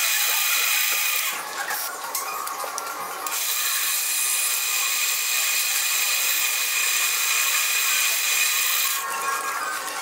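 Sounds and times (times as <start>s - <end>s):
metal lathe whine: 3.3s - 9.6s.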